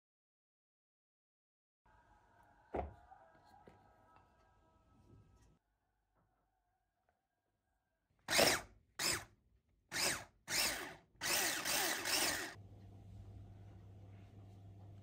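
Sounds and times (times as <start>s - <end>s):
electric hand mixer whirring: 8.3s - 9.2s, 9.9s - 12.6s
faint low hum: 12.6s - 15.0s.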